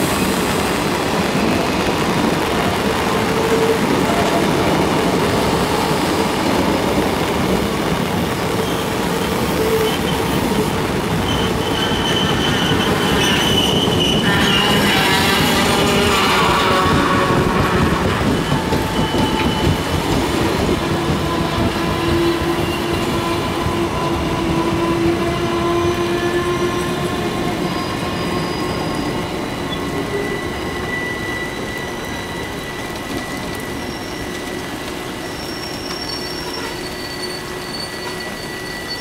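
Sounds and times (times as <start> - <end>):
heavy rain hissing: 0.0 - 13.5
train coaches rolling past: 0.0 - 39.0
wheels and brakes squealing: 8.6 - 39.0.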